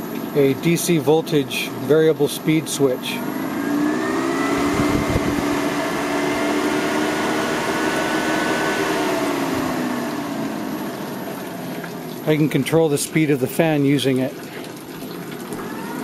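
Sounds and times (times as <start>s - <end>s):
radiator fan humming and whining: 0.0s - 16.0s.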